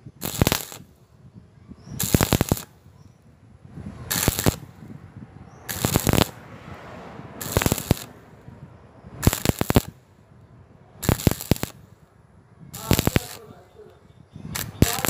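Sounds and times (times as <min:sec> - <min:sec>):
welding arc crackling: 0:00.2 - 0:01.0, 0:02.0 - 0:02.9, 0:04.0 - 0:04.8, 0:05.7 - 0:06.4, 0:07.4 - 0:08.2, 0:09.2 - 0:10.1, 0:11.0 - 0:12.0, 0:12.8 - 0:13.9, 0:14.5 - 0:15.0.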